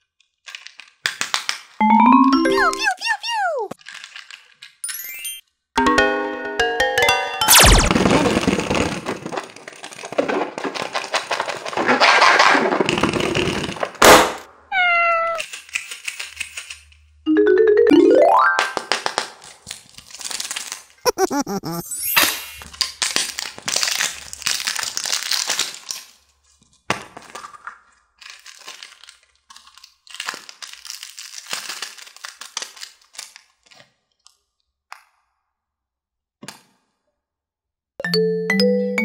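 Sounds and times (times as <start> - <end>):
candy wrapper crinkling and tearing: 0.0 - 1.8, 2.6 - 4.8, 8.0 - 13.9, 15.3 - 17.2, 18.8 - 21.8, 22.6 - 34.7
plastic sachet rustling: 0.4 - 1.8, 3.7 - 4.8, 8.2 - 13.8, 15.4 - 17.1, 18.8 - 21.0, 22.6 - 34.3
chiming xylophone jingle: 1.8 - 2.9, 17.3 - 18.8, 38.0 - 39.0.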